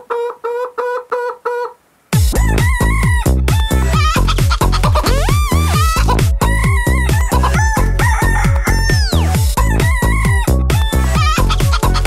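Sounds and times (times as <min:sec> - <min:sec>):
chicken clucks and crowing: 0:00.0 - 0:01.8, 0:03.8 - 0:10.4
electronic kick drum beat: 0:02.2 - 0:12.0.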